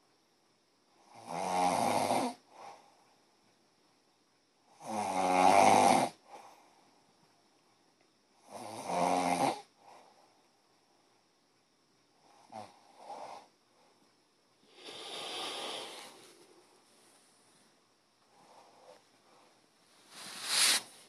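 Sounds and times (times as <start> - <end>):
person snoring: 1.1 - 2.4, 4.8 - 6.2, 8.5 - 9.7, 14.7 - 16.6.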